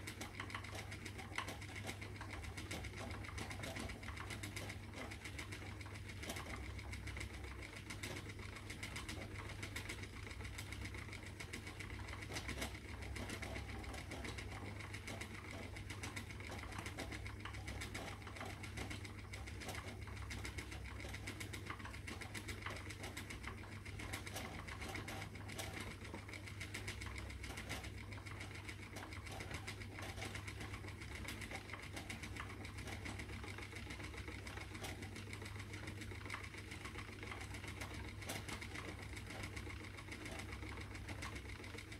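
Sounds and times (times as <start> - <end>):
spinning wheel whirring: 0.0 - 41.9.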